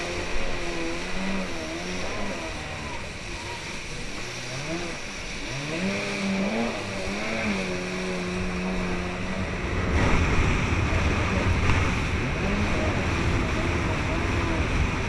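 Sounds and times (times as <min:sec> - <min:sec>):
jet ski engine revving: 0:00.0 - 0:15.0
rushing splashing water: 0:00.0 - 0:15.0.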